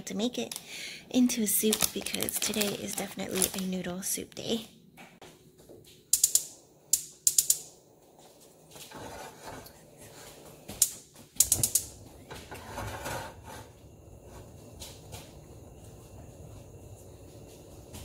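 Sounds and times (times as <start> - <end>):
gas stove igniter clicking: 6.1 - 7.8, 10.7 - 12.0.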